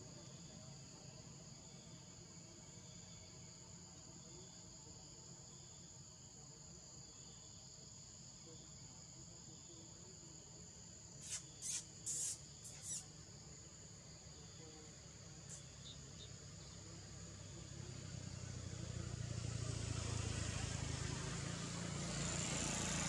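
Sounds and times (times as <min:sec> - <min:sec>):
insect chorus: 0:00.0 - 0:23.0
short sharp high-pitched bursts: 0:11.2 - 0:13.1.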